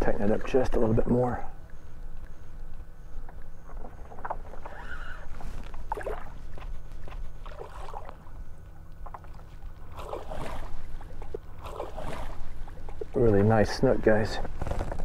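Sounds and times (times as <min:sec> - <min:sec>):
steady low rumble: 0:00.0 - 0:15.0
fish thrashing and splashing: 0:03.7 - 0:13.2.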